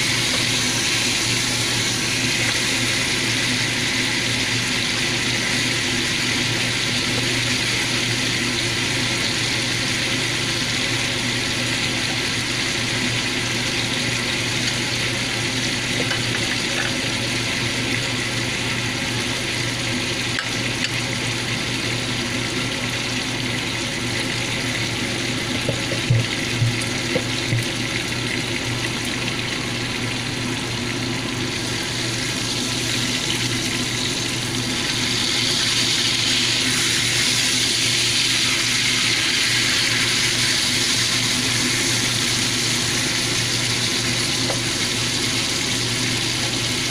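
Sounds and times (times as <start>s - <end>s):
steaks sizzling in a frying pan: 0.0s - 10.6s, 31.6s - 46.9s.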